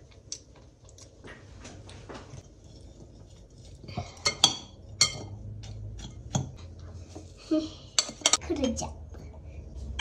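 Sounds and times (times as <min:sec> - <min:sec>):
spoon stirring in glass bowl: 0:02.3 - 0:10.0.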